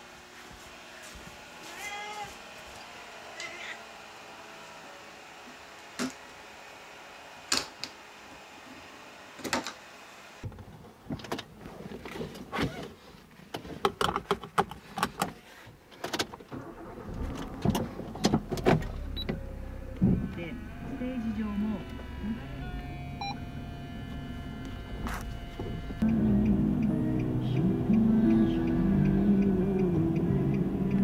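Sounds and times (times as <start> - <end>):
low rumble: 16.6 - 31.0.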